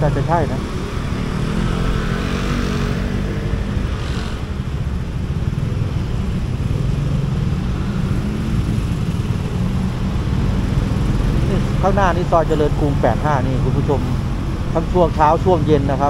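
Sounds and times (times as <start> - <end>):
rush of higher noise: 0.9 - 5.3.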